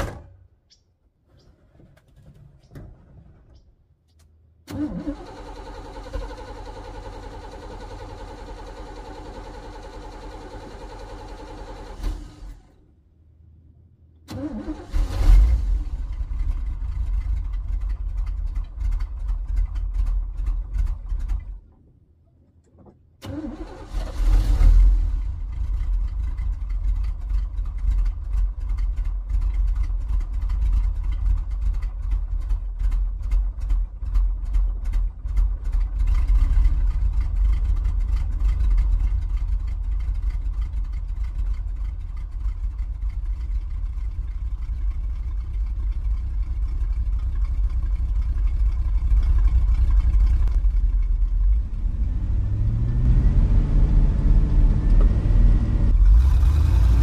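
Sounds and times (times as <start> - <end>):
engine idling: 1.4 - 21.9, 23.3 - 57.0
engine starting and revving: 4.7 - 12.8, 14.3 - 21.6, 23.2 - 31.2, 51.4 - 57.0.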